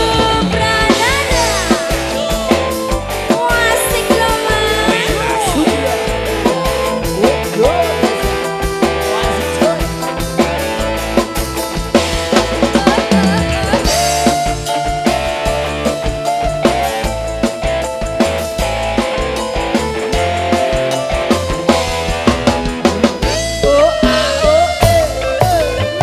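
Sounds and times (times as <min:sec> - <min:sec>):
sliding melody line: 0:00.0 - 0:15.2
drum kit beat: 0:00.0 - 0:26.0
electric guitar: 0:00.0 - 0:26.0.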